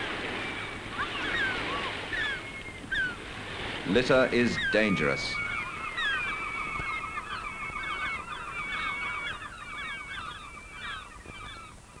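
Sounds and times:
gulls calling: 0:00.0 - 0:12.0.

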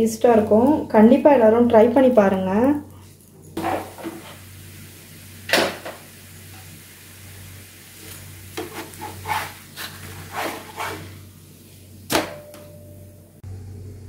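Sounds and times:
wooden spatula scraping a pan: 0:03.6 - 0:04.5, 0:08.0 - 0:11.2.

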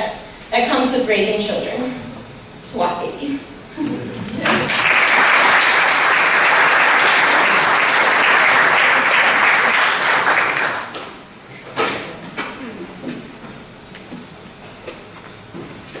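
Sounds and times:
audience applause: 0:04.2 - 0:11.2.

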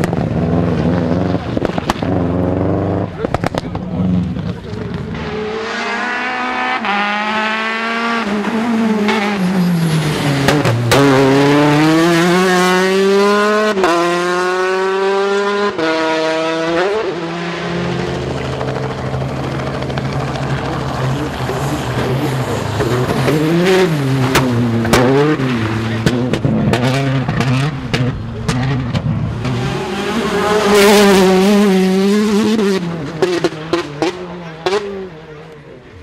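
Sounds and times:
rally car engines revving: 0:00.0 - 0:36.0.

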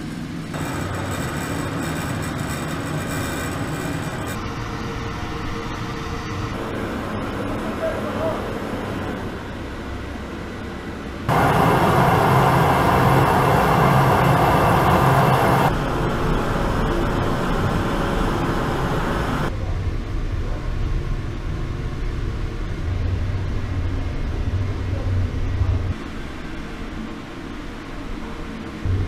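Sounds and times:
electric blower hum: 0:11.3 - 0:15.7
burner flame rushing: 0:11.3 - 0:19.5.

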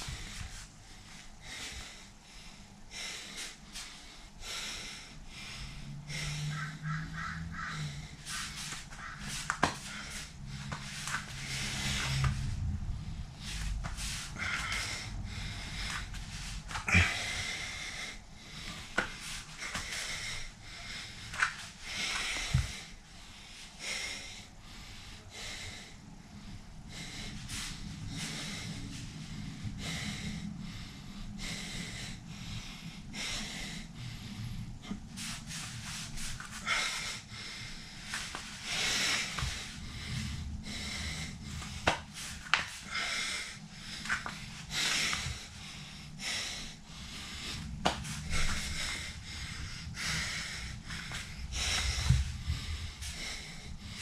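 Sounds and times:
man breathing hard: 0:00.0 - 0:54.0.

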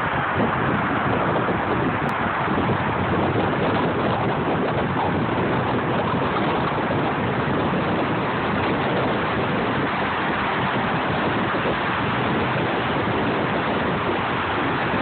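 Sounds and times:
tyre and wind noise in car: 0:00.0 - 0:15.0.

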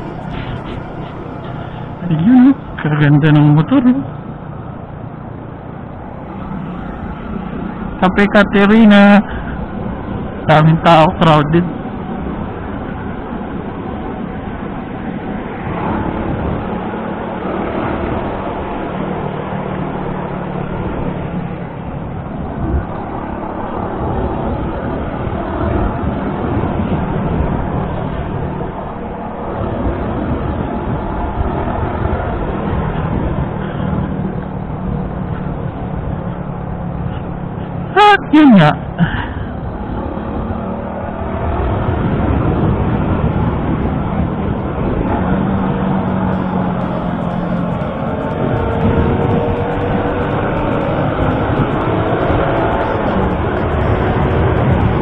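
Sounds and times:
motorcycle engine humming: 0:00.0 - 0:10.4, 0:38.8 - 0:55.0
wind rushing over microphone: 0:00.0 - 0:10.6, 0:11.6 - 0:37.8, 0:38.8 - 0:55.0
road noise: 0:00.0 - 0:55.0
motorcycle engine running: 0:42.0 - 0:55.0.

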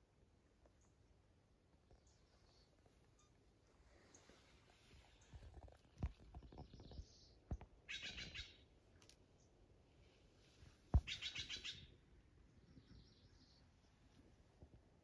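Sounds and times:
bird trills: 0:07.9 - 0:08.6, 0:11.0 - 0:11.9.

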